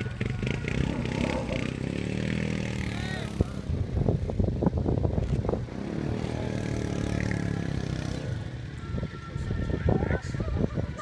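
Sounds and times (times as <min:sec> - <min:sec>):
engine crackling and knocking: 0:00.0 - 0:03.5
quad bike engine running: 0:00.0 - 0:08.8.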